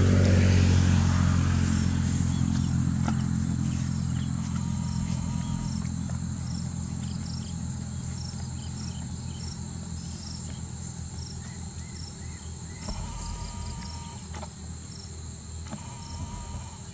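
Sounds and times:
low rumble: 0.0 - 9.5, 12.8 - 14.3, 16.0 - 16.9
insects chirring drone: 0.0 - 16.9.

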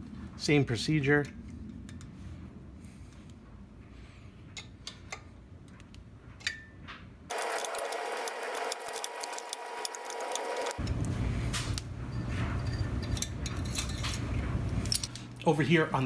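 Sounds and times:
wrench clicking on metal: 7.3 - 10.8.

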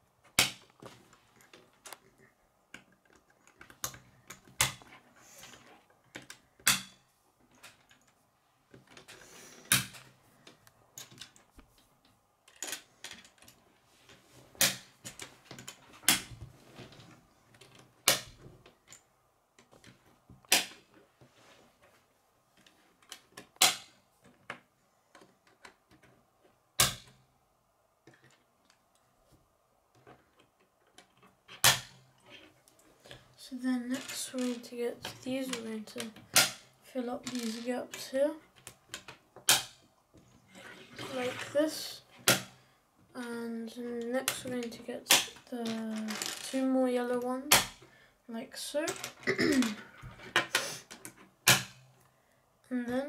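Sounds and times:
loose plastic pieces rattling: 30.0 - 39.8, 44.0 - 47.8.

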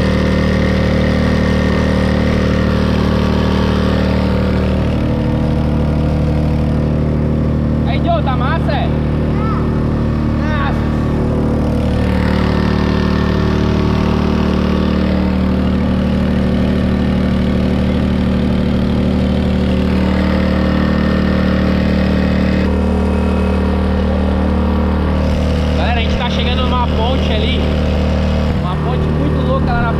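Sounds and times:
outboard motor running: 0.0 - 29.9.

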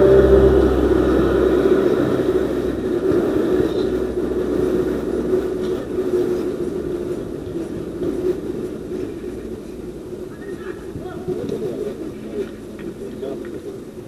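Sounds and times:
vehicle engine running: 0.0 - 7.2.

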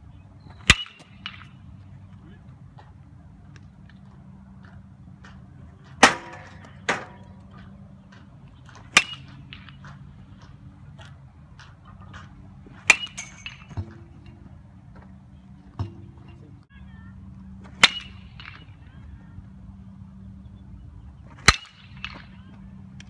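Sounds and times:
baseball bat cracking: 0.6 - 2.4, 4.7 - 14.5, 17.6 - 18.9, 21.3 - 23.0.

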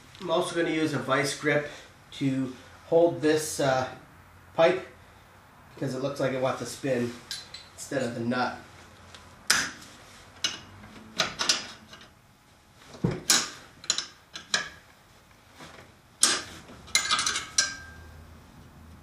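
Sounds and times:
wrench and pliers clinking on metal: 16.2 - 18.0.

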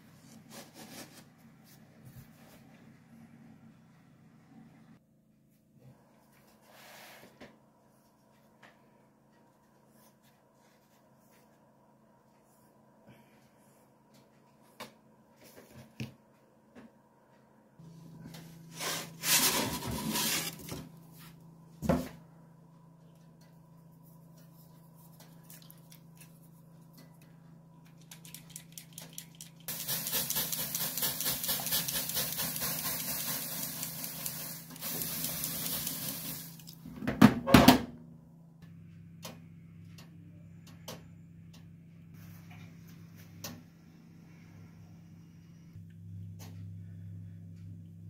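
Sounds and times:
oven humming: 16.7 - 25.4
steam hissing and crackling: 29.7 - 36.6.

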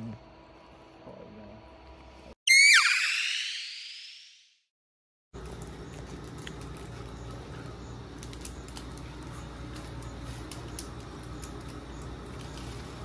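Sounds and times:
vending machine hum: 5.4 - 13.0.

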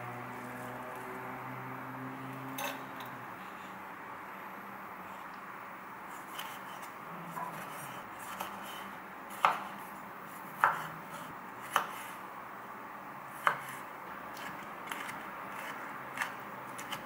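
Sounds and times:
knife cutting tomatoes: 6.1 - 12.2, 13.3 - 17.0.

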